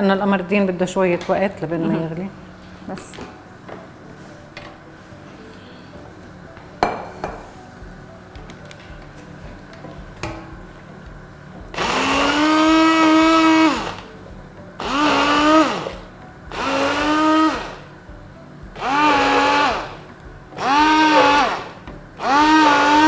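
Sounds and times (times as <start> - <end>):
immersion blender motor whine: 11.7 - 14.0, 14.8 - 17.9, 18.8 - 20.0, 20.6 - 23.0.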